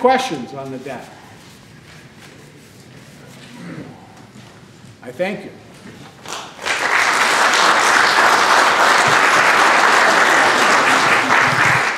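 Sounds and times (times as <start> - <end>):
audience applauding: 6.2 - 11.9.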